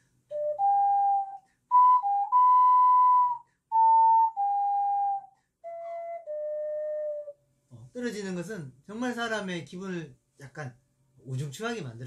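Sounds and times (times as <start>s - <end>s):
ocarina playing: 0.3s - 7.4s.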